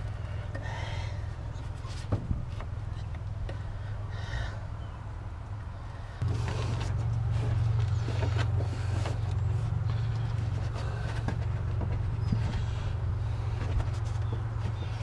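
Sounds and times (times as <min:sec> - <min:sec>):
steady low rumble: 0:00.0 - 0:15.0
clicks and rustles of rubber hose: 0:06.2 - 0:15.0.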